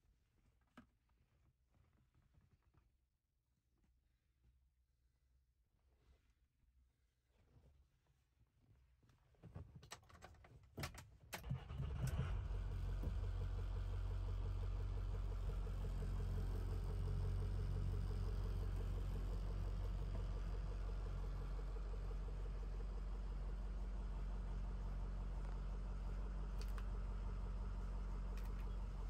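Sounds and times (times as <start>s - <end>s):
diesel engine cranking: 11.4s - 13.3s
diesel engine idling: 12.4s - 29.0s
clicks: 28.3s - 28.9s.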